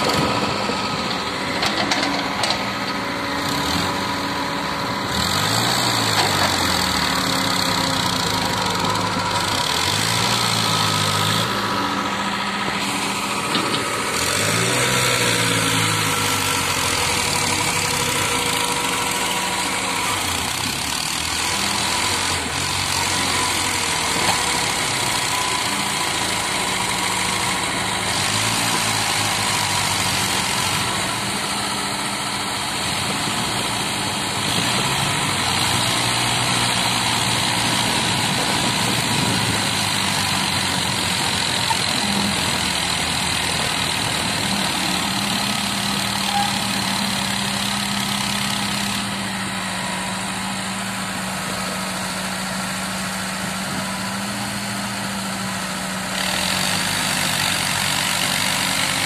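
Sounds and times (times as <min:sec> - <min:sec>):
excavator diesel engine: 0:00.0 - 0:59.0
tractor engine idling: 0:35.2 - 0:59.0.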